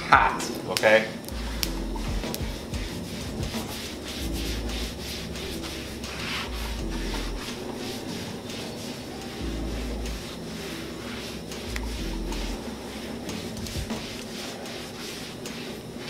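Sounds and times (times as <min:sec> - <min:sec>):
cloth towel rubbing on steel: 0:01.4 - 0:16.0.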